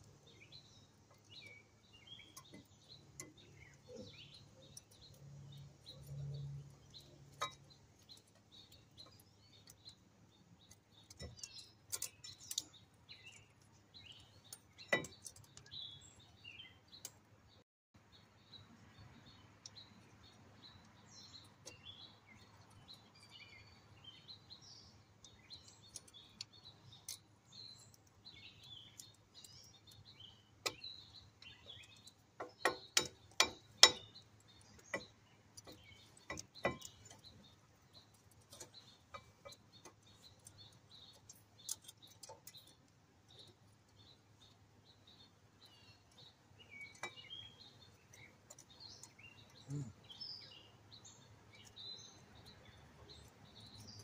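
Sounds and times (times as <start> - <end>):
birds chirping: 0.0 - 54.0
metallic clicks of brake pads: 25.2 - 44.1.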